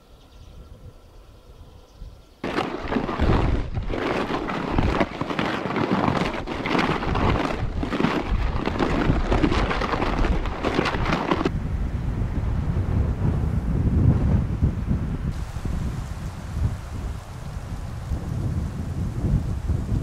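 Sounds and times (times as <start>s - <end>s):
wind buffeting microphone: 0.3s - 20.0s.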